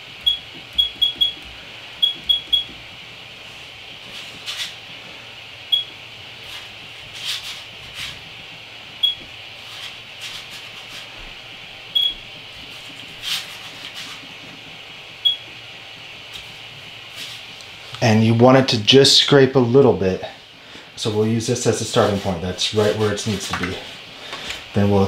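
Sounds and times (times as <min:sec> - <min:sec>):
cooling fan hiss: 0:00.0 - 0:25.0
papery scrapes: 0:06.4 - 0:08.2, 0:12.7 - 0:14.4.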